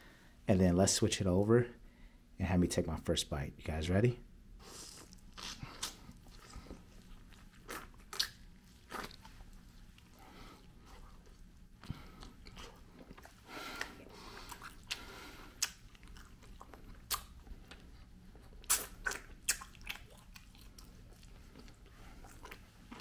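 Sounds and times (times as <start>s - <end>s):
person chewing food: 4.6s - 23.0s
wet mouth smacks: 7.7s - 9.3s, 11.3s - 17.8s, 18.6s - 20.6s.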